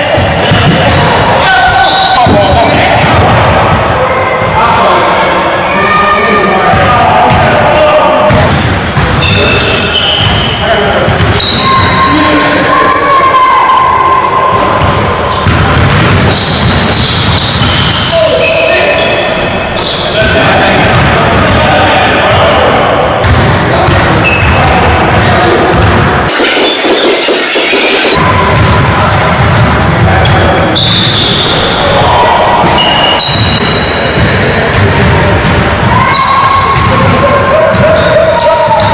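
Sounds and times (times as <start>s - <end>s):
sneaker squeaks: 9.2s - 13.8s, 15.3s - 20.4s, 29.1s - 31.8s, 32.6s - 34.2s, 35.9s - 38.9s
basketball bouncing: 14.8s - 17.9s, 23.2s - 24.6s, 25.7s - 29.7s.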